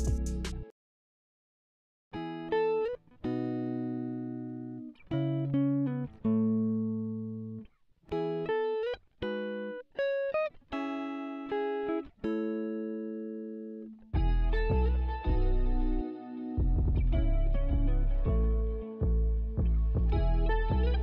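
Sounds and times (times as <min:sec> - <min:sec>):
plucked string notes and chords: 0:00.0 - 0:00.7, 0:02.2 - 0:21.0.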